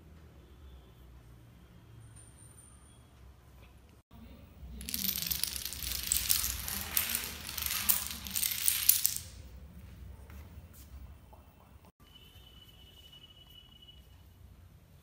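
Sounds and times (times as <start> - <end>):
dominoes clattering on tile: 4.8 - 9.4.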